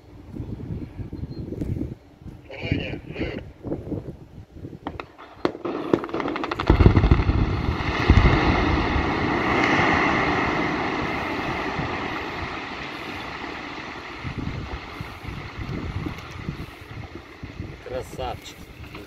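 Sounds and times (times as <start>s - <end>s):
deep explosion booms: 4.9s - 17.8s
sharp blast cracks: 5.5s - 17.1s
long rumble: 5.6s - 19.0s.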